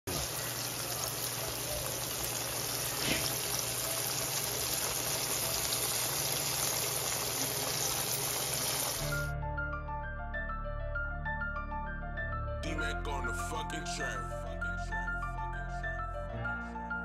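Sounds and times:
food sizzling in hot oil: 0.1s - 9.3s.

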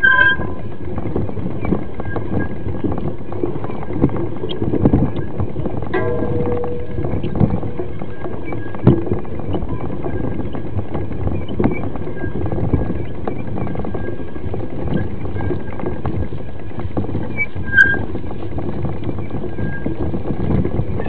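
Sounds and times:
sharp knocks: 6.0s - 9.2s.

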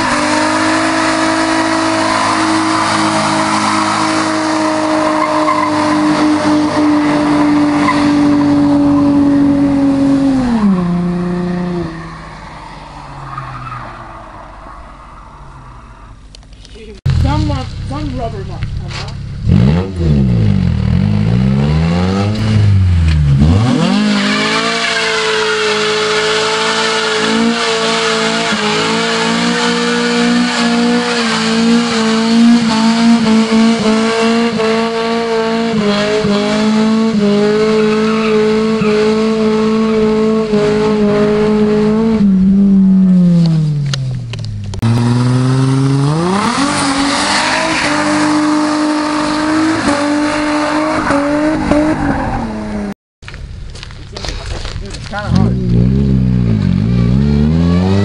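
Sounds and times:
car engine at high revs: 0.0s - 13.8s, 14.4s - 52.9s, 53.8s - 58.0s
tyres squealing on asphalt: 0.0s - 16.6s, 23.8s - 41.6s, 44.8s - 52.9s, 56.6s - 58.0s.

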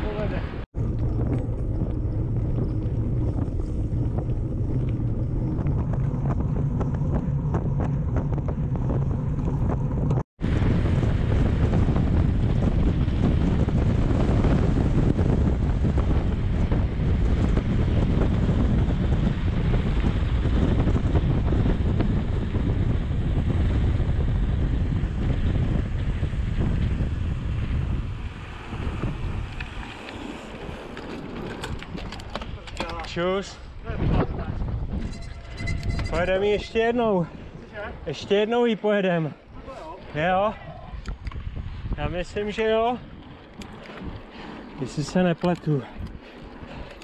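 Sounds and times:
tyres rumbling on asphalt: 0.0s - 34.9s
wind buffeting microphone: 0.0s - 47.0s.

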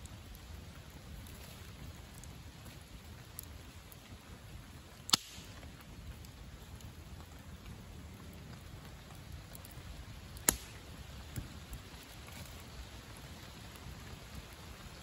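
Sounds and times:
campfire crackling: 0.0s - 15.0s
sharp loud pop: 5.1s - 5.5s.

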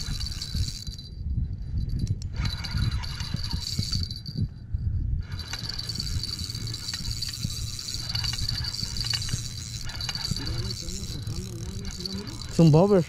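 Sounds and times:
fishing rod and reel knocks: 5.2s - 12.9s
crickets trilling: 5.4s - 13.0s.

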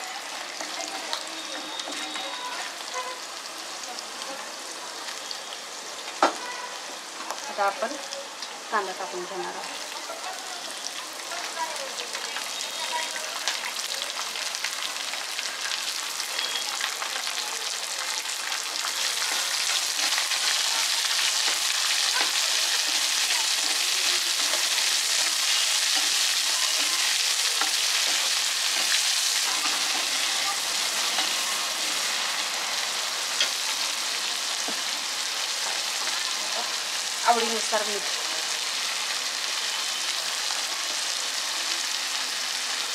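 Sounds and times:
onions sizzling in oil: 0.0s - 42.9s
spatula stirring: 18.9s - 31.4s.

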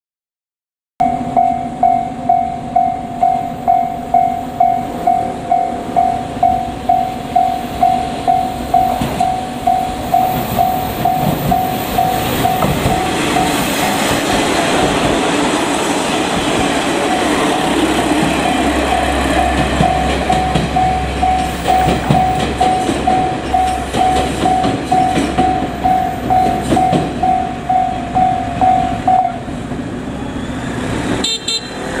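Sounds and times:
level crossing alarm bell ringing: 1.0s - 13.7s, 18.4s - 29.2s
diesel train rumbling past: 1.0s - 32.0s.

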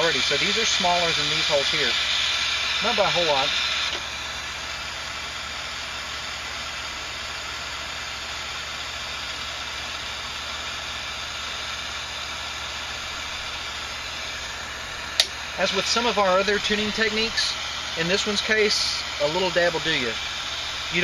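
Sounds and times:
steady hiss: 0.0s - 21.0s
low hum: 11.4s - 21.0s.

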